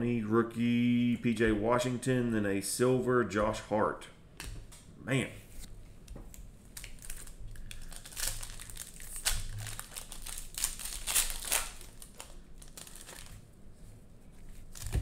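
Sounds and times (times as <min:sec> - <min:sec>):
cellophane wrapper crinkling: 0:06.7 - 0:13.5.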